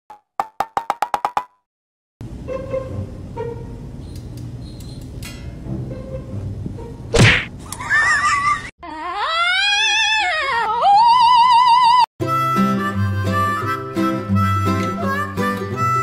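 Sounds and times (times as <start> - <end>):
sharp smack: 7.1 - 7.5
cat yowling: 8.9 - 12.0.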